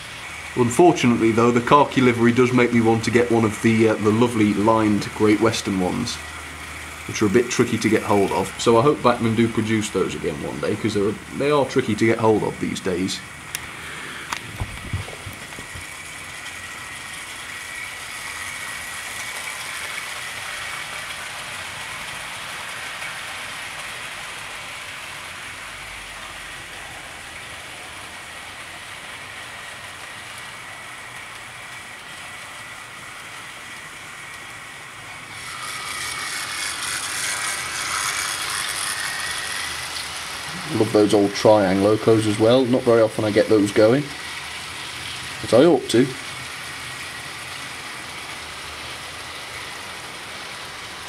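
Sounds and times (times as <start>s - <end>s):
wheels rattling on track: 0.0s - 13.6s, 14.3s - 51.0s
electric motor whine: 12.4s - 21.2s, 35.1s - 51.0s.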